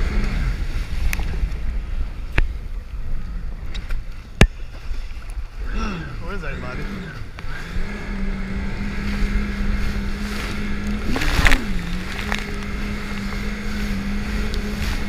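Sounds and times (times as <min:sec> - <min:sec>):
jet ski engine running: 0:00.0 - 0:15.0
wind and spray noise: 0:00.0 - 0:15.0
water splashing: 0:10.1 - 0:15.0.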